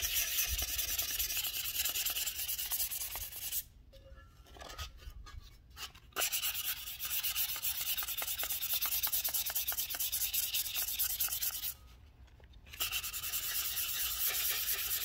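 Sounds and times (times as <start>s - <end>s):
sandpaper scrubbing metal: 0.0s - 3.7s, 6.2s - 11.8s, 12.7s - 15.0s.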